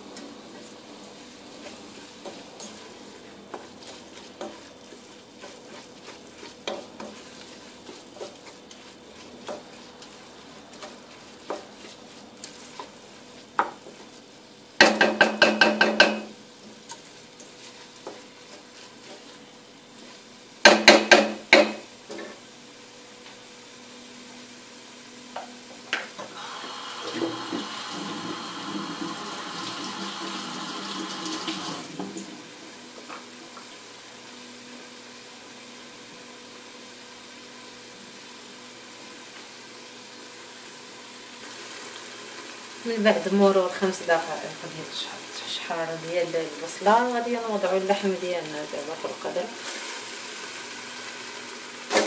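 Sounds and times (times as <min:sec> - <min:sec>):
onions frying in oil: 0:00.0 - 0:52.0
spoon tapping and scraping pot: 0:01.6 - 0:14.2, 0:14.8 - 0:19.4, 0:20.6 - 0:22.4.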